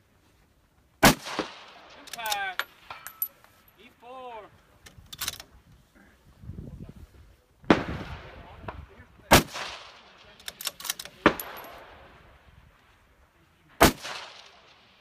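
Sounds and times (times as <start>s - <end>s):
rifle shots echoing: 1.0s - 3.0s, 7.7s - 10.4s, 11.0s - 12.4s, 13.8s - 15.0s.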